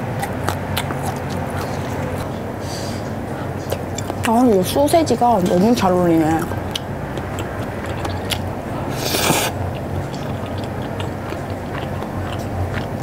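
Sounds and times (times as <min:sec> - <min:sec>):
low steady hum: 0:00.0 - 0:13.0
soft chewing: 0:00.2 - 0:04.4, 0:06.3 - 0:13.0
noodles slurped: 0:08.9 - 0:09.6.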